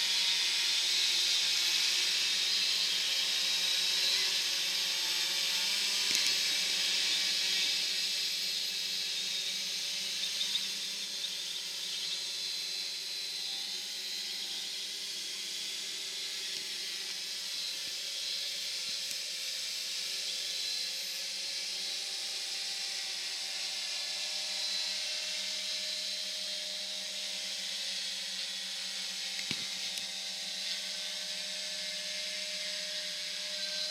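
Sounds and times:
drone propellers whirring: 0:01.8 - 0:27.5.

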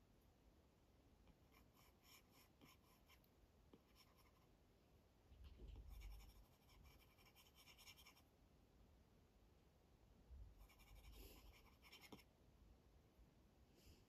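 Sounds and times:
stylus scratching on glass screen: 0:05.4 - 0:08.2, 0:10.6 - 0:12.3.

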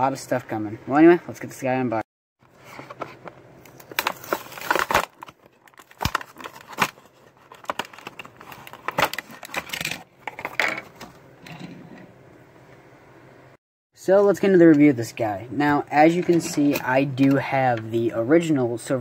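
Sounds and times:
plastic blister pack crackling: 0:03.6 - 0:09.8.

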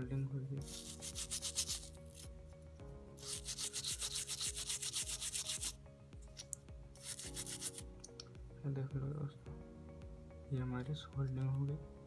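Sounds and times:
toothbrush scrubbing circuit board: 0:00.6 - 0:02.2, 0:03.2 - 0:05.8, 0:06.4 - 0:07.8.

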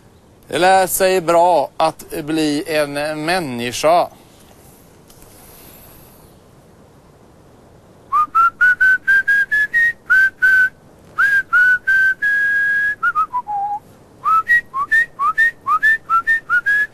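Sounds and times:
man whistling a tune: 0:08.1 - 0:16.9.

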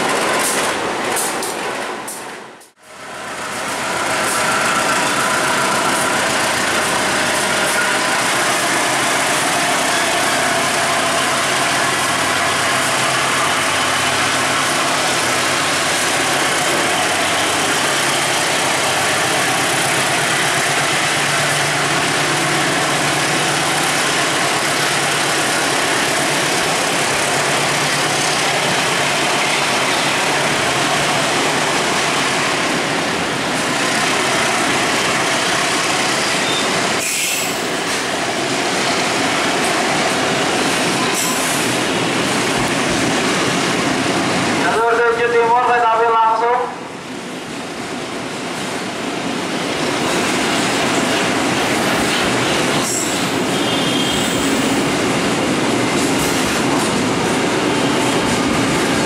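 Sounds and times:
steel wheels rumbling on rails: 0:00.0 - 0:44.8, 0:47.2 - 0:59.0.

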